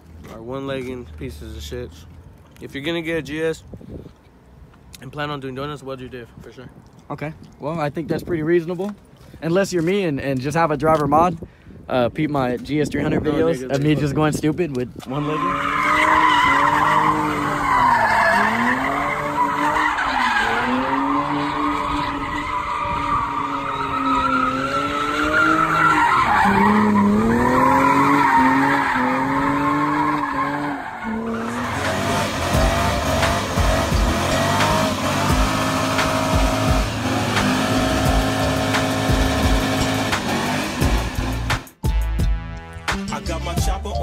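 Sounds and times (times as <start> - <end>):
tyres screeching: 15.1 - 41.6
car engine revving: 15.4 - 41.8
music with steady beat: 31.8 - 44.0.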